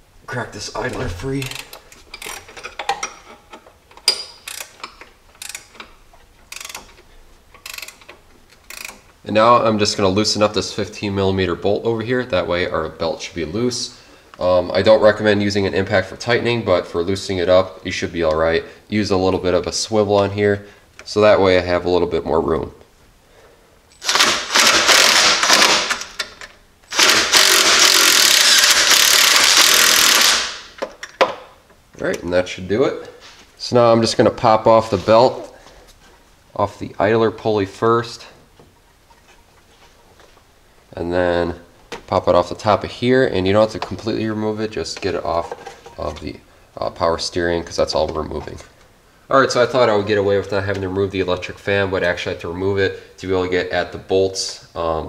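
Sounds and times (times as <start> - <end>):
ratcheting wrench clicking: 1.2 - 9.1, 23.9 - 30.6
impact wrench hammering: 24.0 - 26.0, 26.9 - 30.7.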